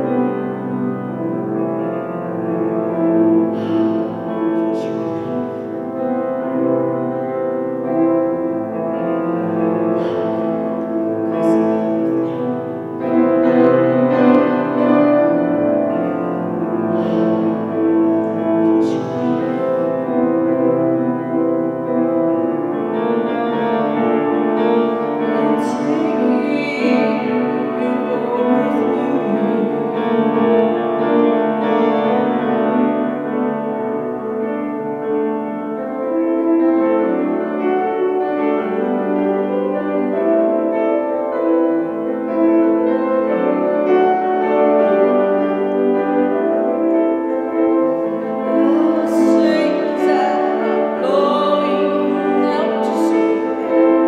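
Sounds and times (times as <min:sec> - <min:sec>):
piano chords: 0:00.0 - 0:54.0
woman singing into microphone: 0:25.3 - 0:29.9, 0:48.5 - 0:53.6.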